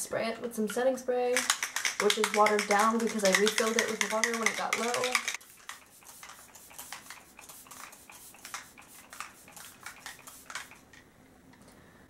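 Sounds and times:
spray bottle hisses: 5.3 - 10.9.

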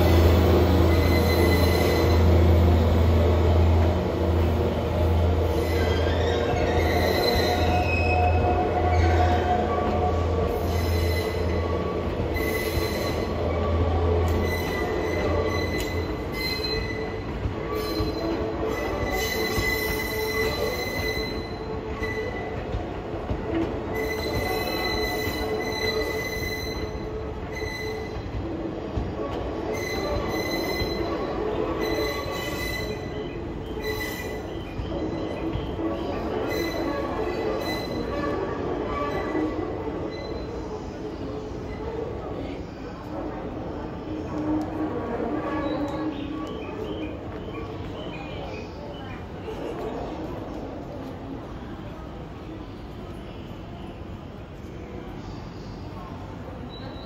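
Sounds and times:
train wheels squealing: 0.0 - 43.0, 54.9 - 57.0.

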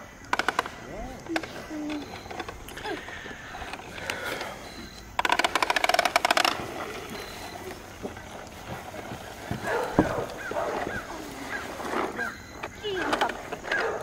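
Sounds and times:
toy lawn mower clicking rattle: 0.2 - 6.6, 11.6 - 14.0.

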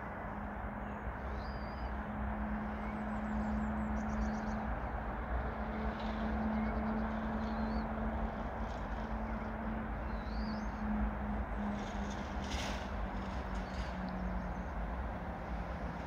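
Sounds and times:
small birds chirping: 0.8 - 2.0.

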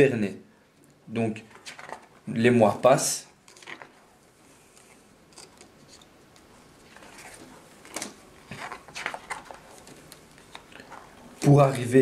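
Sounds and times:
calendar pages flipping: 1.5 - 2.2, 3.4 - 12.0.

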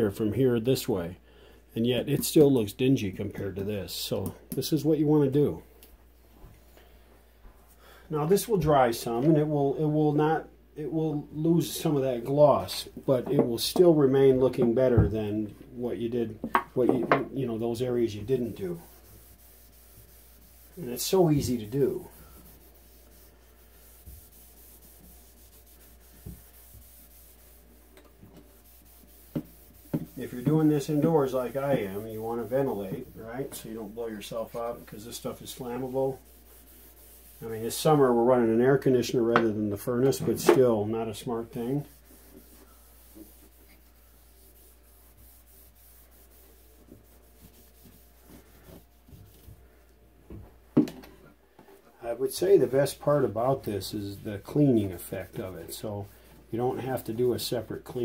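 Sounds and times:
rag scrubbing wood: 16.5 - 38.6, 40.2 - 49.2
felt pad rubbing on cabinet: 16.8 - 38.6, 40.6 - 49.5.

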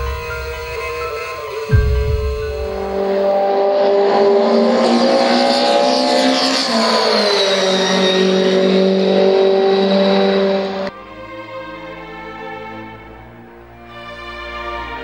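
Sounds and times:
race car engine at high revs: 0.0 - 10.9.

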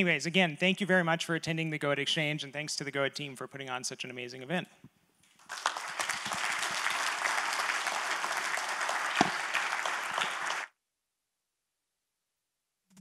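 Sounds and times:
audience applause: 5.4 - 10.7.

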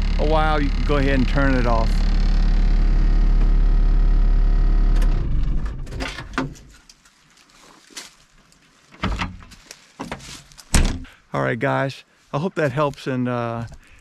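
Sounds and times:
diesel engine idling: 0.0 - 4.9
engine running down: 0.0 - 5.9.

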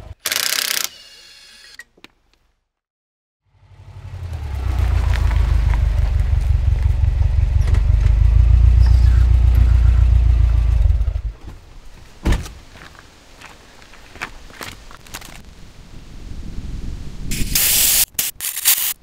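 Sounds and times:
car engine rumbling: 3.6 - 11.7
sharp thunk: 12.2 - 12.6.

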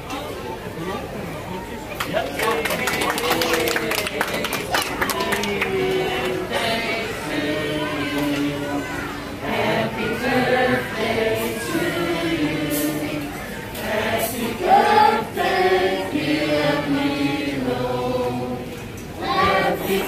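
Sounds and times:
group of people singing: 3.0 - 20.0.

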